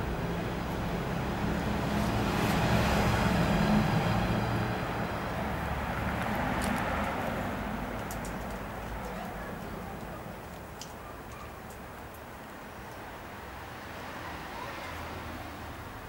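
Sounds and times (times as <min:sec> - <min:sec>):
vehicle passing by: 0:00.0 - 0:10.0.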